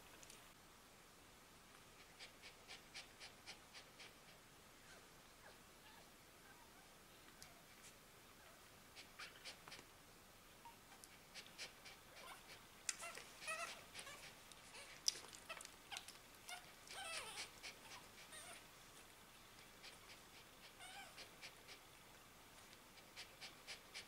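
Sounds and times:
puppies squeaking and whimpering: 12.2 - 18.6.

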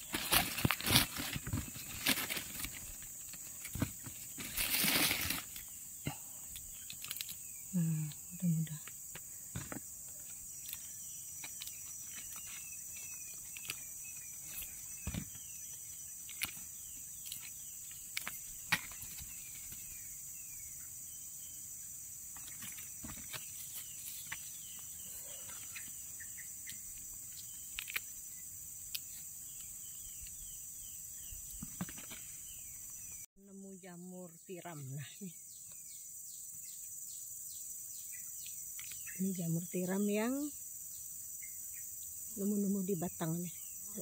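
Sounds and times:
dry leaves crackling: 0.0 - 5.7, 6.8 - 7.4
high insect drone: 0.0 - 44.0
small birds chirping: 0.0 - 44.0.

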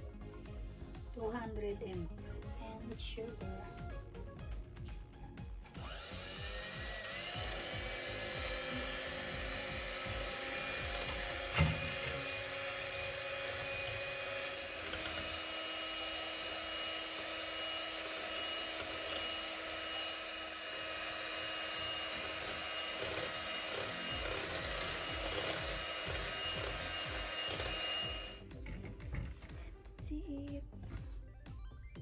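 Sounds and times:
electric hand mixer whipping cream: 4.4 - 29.6.

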